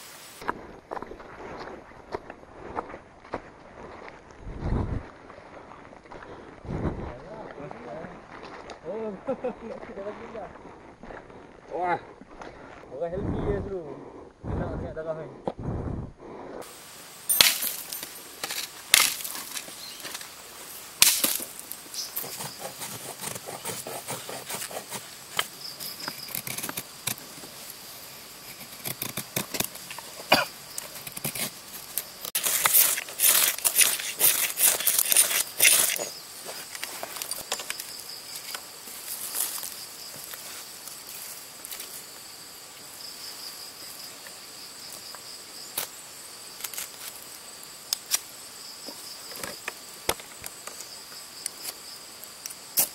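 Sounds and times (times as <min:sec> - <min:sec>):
insects buzzing: 0:16.6 - 0:52.9
knife scraping wood: 0:21.0 - 0:38.6.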